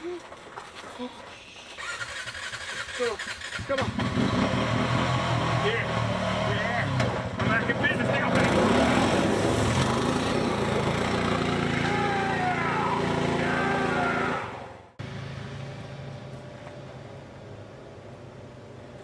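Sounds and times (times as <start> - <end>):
atv engine running: 1.8 - 19.0.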